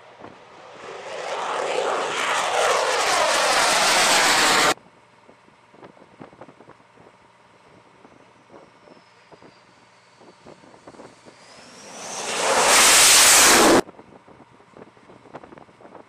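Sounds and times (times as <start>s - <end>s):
aircraft engine whine and roar: 0.0s - 4.8s, 8.0s - 13.8s.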